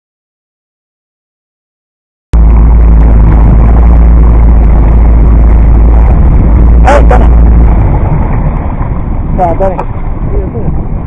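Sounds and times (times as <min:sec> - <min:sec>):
boat engine running: 0:02.4 - 0:11.0.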